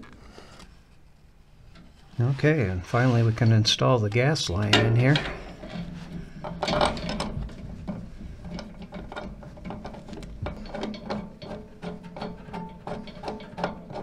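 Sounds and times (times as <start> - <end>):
steady low hum: 0.0 - 14.0
metallic clicks and rattles: 4.4 - 14.0.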